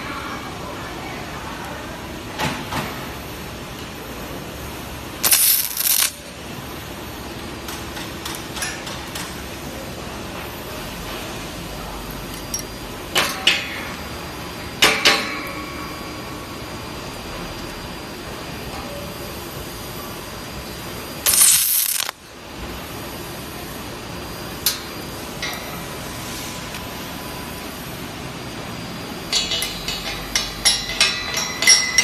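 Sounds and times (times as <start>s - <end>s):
stud welding gun sizzling burst: 5.2s - 6.3s, 21.2s - 22.2s.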